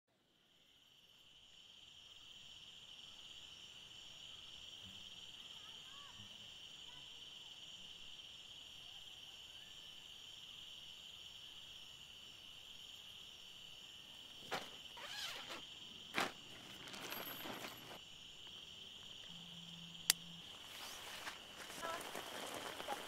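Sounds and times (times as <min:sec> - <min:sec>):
high-pitched insect chorus: 0:00.2 - 0:23.0
camping gear rustling: 0:14.3 - 0:19.3, 0:20.4 - 0:23.0.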